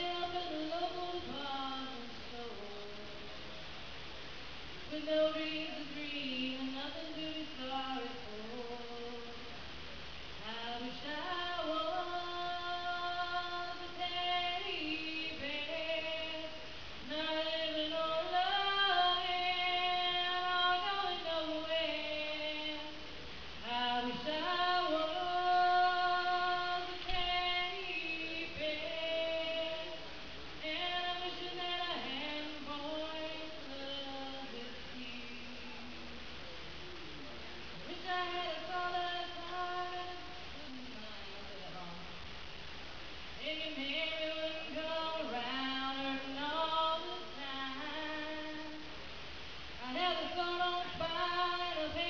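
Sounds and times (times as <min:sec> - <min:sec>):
woman singing unaccompanied: 0:00.0 - 0:36.4, 0:37.8 - 0:42.3, 0:43.2 - 0:52.0.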